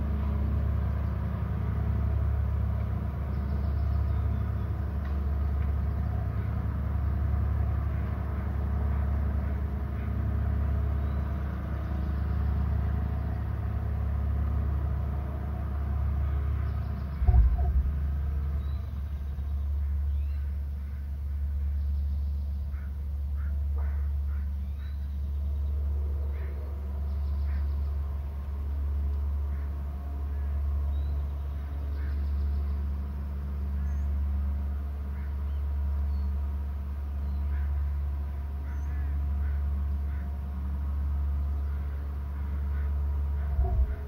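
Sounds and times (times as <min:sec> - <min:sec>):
low thump: 0:17.2 - 0:18.1.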